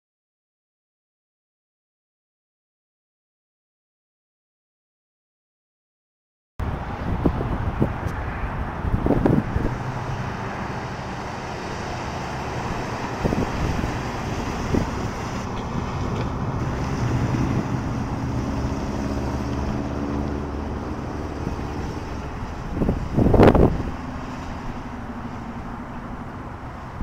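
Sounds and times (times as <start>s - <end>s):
wind noise on microphone: 6.6s - 27.0s
car engine driving past: 7.8s - 27.0s.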